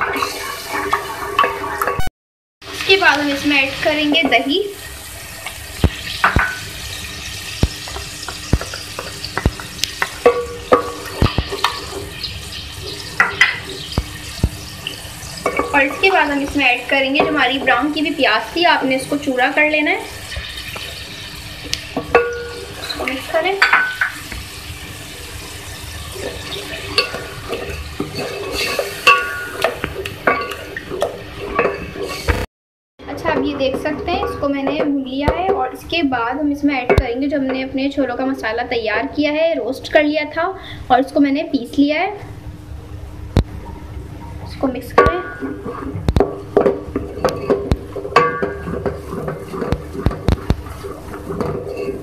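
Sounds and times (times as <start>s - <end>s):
food sizzling in a pot: 0.0s - 32.5s, 42.3s - 52.0s
wooden spoon knocking on pot: 7.6s - 11.8s, 45.0s - 52.0s.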